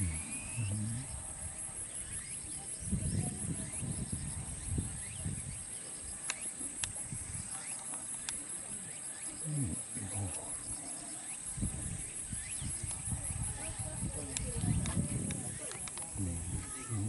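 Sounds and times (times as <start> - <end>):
low rumbling on microphone: 0.0 - 1.6, 11.6 - 17.0
insects chirring: 0.0 - 17.0.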